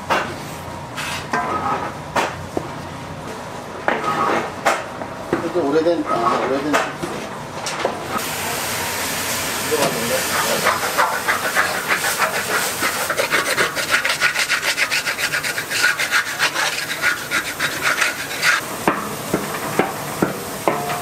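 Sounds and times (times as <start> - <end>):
wooden paddle scraping a pan: 10.3 - 18.6.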